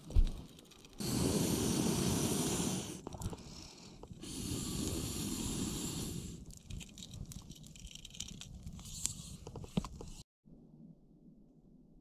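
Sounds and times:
wood fire crackling and popping: 0:00.0 - 0:10.2
breath blown through poker hissing: 0:01.0 - 0:06.6.

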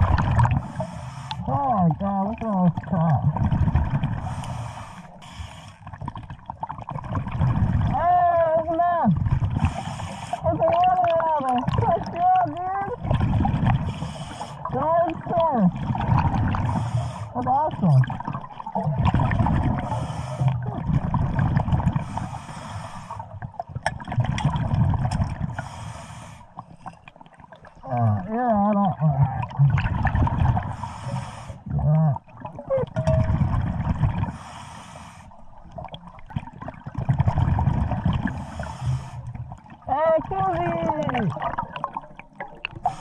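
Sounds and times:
rush of exhaled bubbles: 0:00.0 - 0:01.6, 0:02.8 - 0:05.1, 0:05.8 - 0:08.0, 0:12.9 - 0:25.7, 0:27.2 - 0:34.6, 0:35.4 - 0:43.0
deep bubbling and gurgling: 0:00.0 - 0:43.0.

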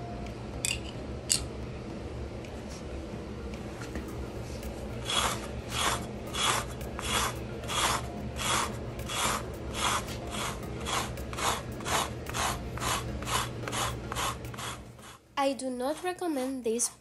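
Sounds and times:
rake rasping across rug: 0:05.0 - 0:15.2.

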